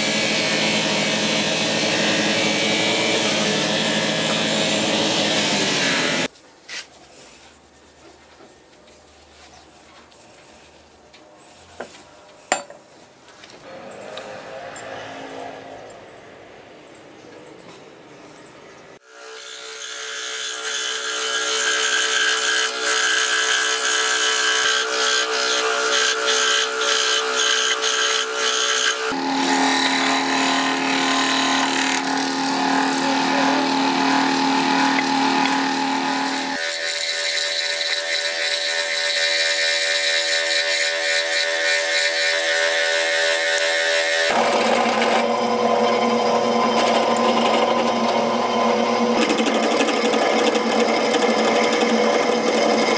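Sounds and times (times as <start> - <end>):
scroll saw cutting wood: 0.0 - 6.3, 19.0 - 52.9
drill press boring into wood: 20.7 - 41.0, 43.6 - 52.9
power tool motor spinning up: 43.6 - 52.9.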